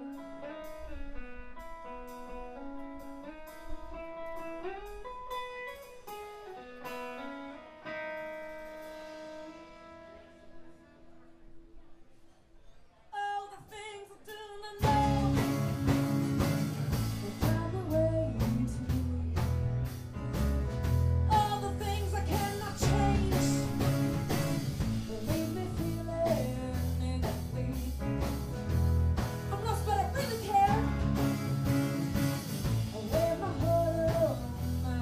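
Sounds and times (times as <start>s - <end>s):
live band playing: 0.0s - 10.8s, 14.8s - 35.0s
picked guitar notes: 0.0s - 11.6s, 14.8s - 35.0s
woman singing lead: 13.2s - 16.2s, 17.1s - 19.7s, 21.3s - 28.4s, 29.5s - 35.0s.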